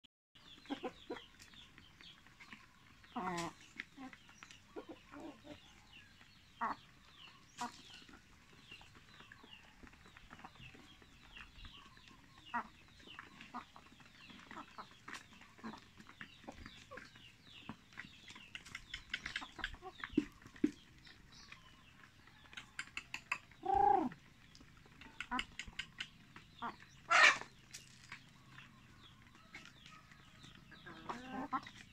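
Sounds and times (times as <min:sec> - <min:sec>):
hens clucking: 0:00.4 - 0:31.9
hen squawk: 0:27.1 - 0:27.5.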